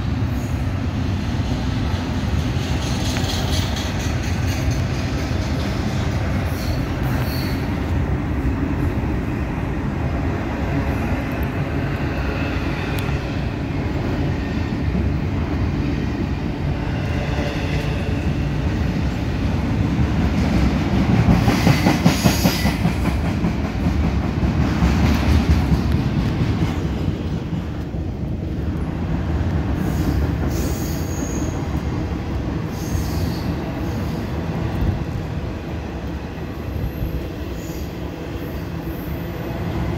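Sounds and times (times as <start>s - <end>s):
train wheels rumbling and rattling: 0.0s - 39.9s
high-pitched wheel squeals: 6.6s - 7.7s.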